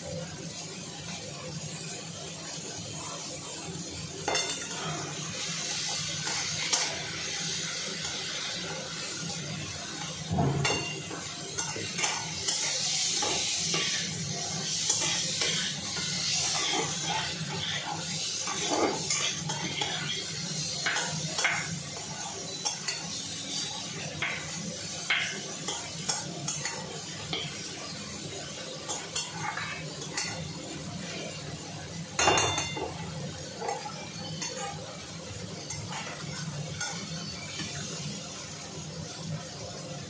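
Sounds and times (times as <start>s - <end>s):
frying sizzle: 0.0s - 40.0s
metal utensils scraping a pan: 9.9s - 27.7s, 28.7s - 31.4s, 32.2s - 37.8s
metal clank: 10.3s - 11.2s.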